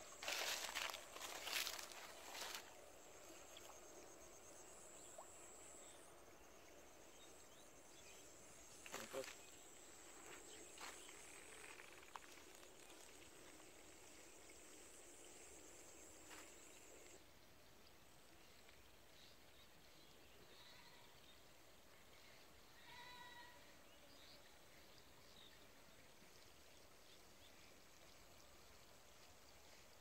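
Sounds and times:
faint insect trill: 0.0s - 17.2s, 19.9s - 21.5s, 22.1s - 24.6s
faint outdoor ambience: 0.0s - 30.0s.

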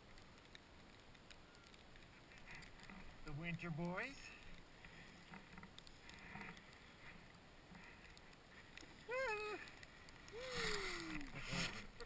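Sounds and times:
person whooping: 10.3s - 11.4s.

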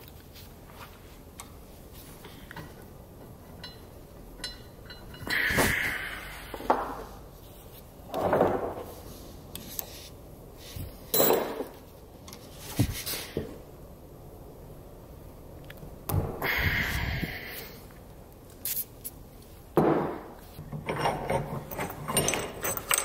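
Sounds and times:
wrench scraping and clinking metal: 3.4s - 5.4s, 20.7s - 23.0s.

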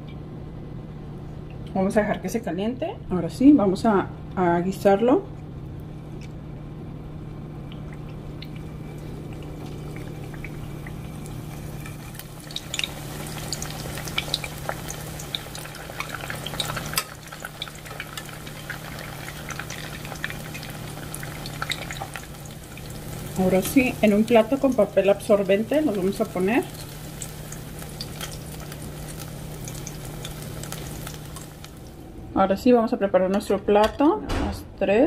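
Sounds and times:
oil popping and crackling: 7.6s - 32.0s
food frying in oil: 7.6s - 32.1s.

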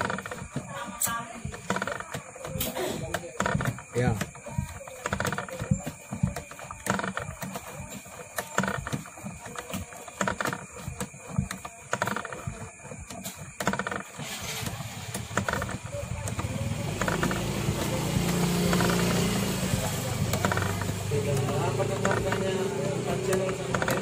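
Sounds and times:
coil-winding jig clicking: 0.0s - 24.0s
steady engine-like hum: 14.2s - 24.0s.

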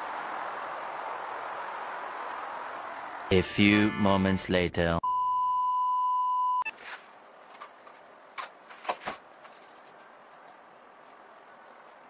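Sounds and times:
test-card beep: 5.0s - 6.7s
clothes rustling: 6.7s - 12.0s.

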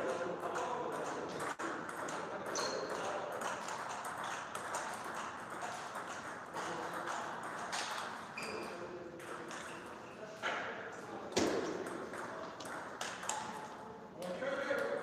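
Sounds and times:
table tennis ball on rackets: 0.0s - 10.7s, 11.3s - 15.0s
ball bouncing on table: 11.3s - 13.7s.

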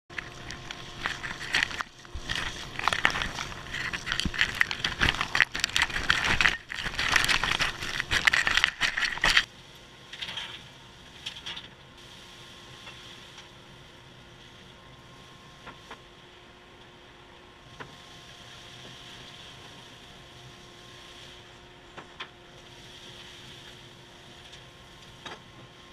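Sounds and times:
wood shavings crackling in hose: 0.1s - 9.5s, 22.6s - 25.1s.

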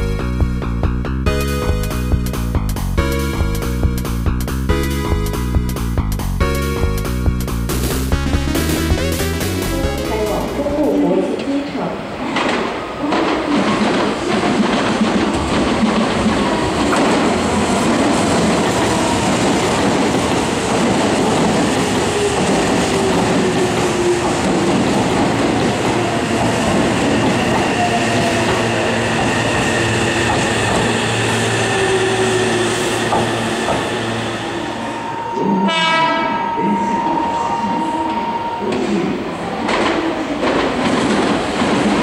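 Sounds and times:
train wheels rumbling on rails: 6.9s - 35.7s, 38.0s - 42.0s.

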